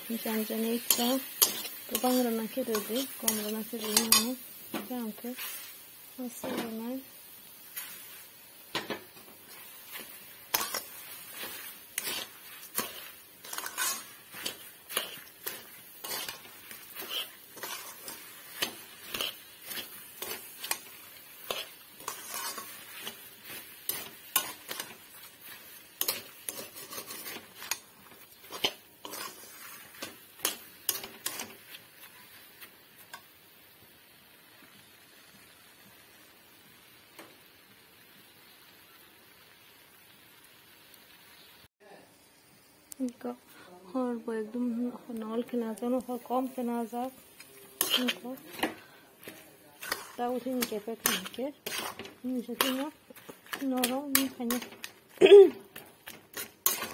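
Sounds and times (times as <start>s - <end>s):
metal spoon scraping a pan: 0.1s - 6.8s, 7.6s - 33.3s, 46.1s - 56.9s.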